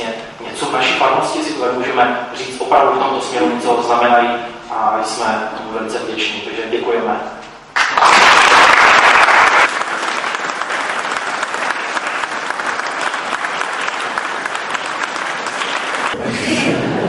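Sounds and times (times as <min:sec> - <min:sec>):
crowd applauding: 0:07.8 - 0:16.8.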